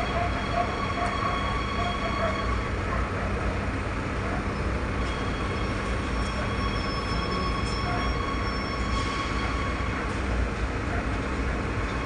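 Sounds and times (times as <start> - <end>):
high wheel squeal: 0.0 - 3.1, 4.5 - 10.4
train rumble inside carriage: 0.0 - 12.0.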